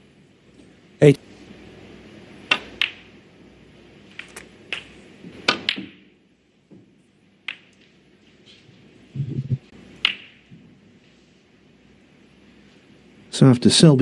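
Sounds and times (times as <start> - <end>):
cue striking ball: 2.5 - 3.1, 4.7 - 6.1, 10.0 - 10.7
snooker balls clicking together: 2.5 - 3.1, 4.1 - 6.1, 7.4 - 8.0, 10.0 - 10.5.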